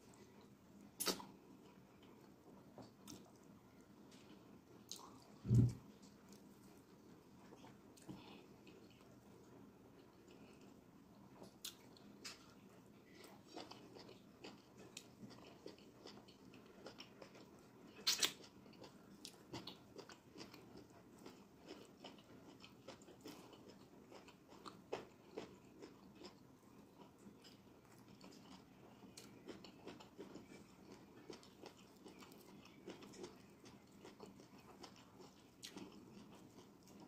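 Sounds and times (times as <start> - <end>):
person chewing with wet mouth smacks: 1.0 - 3.5, 11.4 - 26.4, 27.0 - 37.0.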